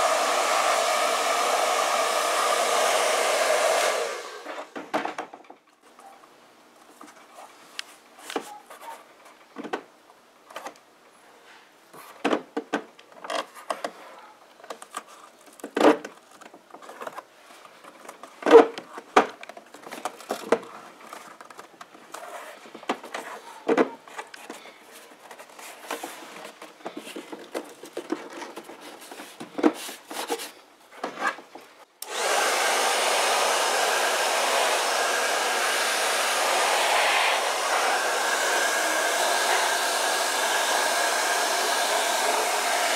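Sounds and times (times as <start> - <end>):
hair dryer running: 0.0 - 4.7, 32.0 - 42.9.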